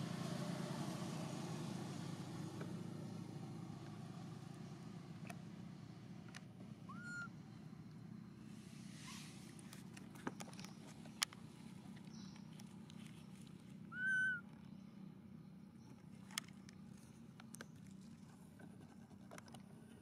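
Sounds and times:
faint low hum: 0:02.6 - 0:20.0
animal whistled call: 0:06.9 - 0:07.4, 0:13.9 - 0:14.5.

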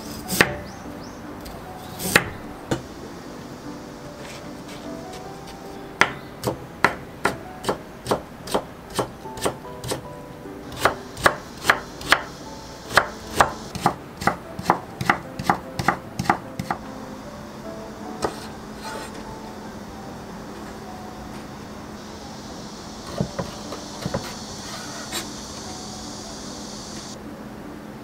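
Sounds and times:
knife chopping carrot on board: 0:12.9 - 0:16.8.

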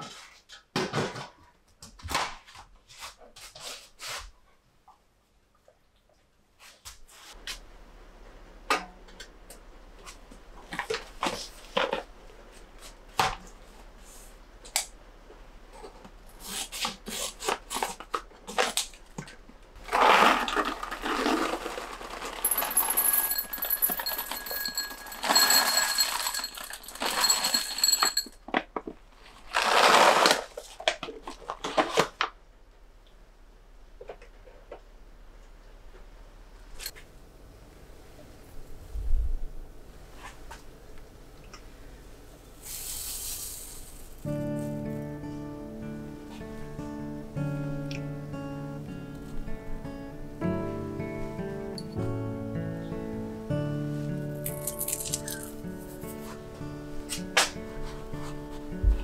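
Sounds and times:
paper rustling: 0:19.8 - 0:23.5, 0:29.2 - 0:32.3
chocolate pieces rattling in glass bowl: 0:19.8 - 0:28.3, 0:54.5 - 0:55.6.

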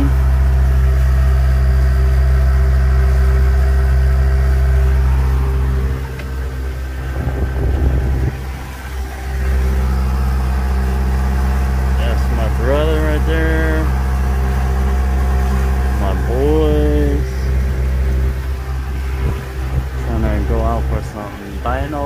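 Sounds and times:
boat motor humming: 0:00.0 - 0:22.0.

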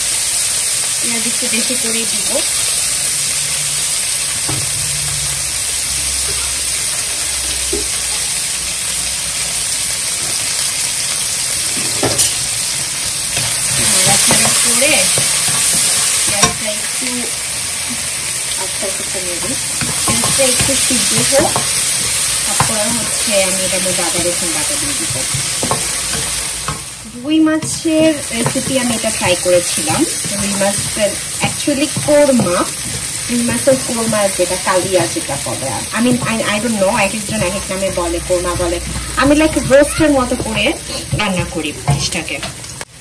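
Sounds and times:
onions sizzling in hot oil: 0:00.0 - 0:43.0
spatula knocking on pan: 0:19.4 - 0:26.9, 0:27.6 - 0:42.6
wooden spatula scraping a pan: 0:27.6 - 0:42.6.

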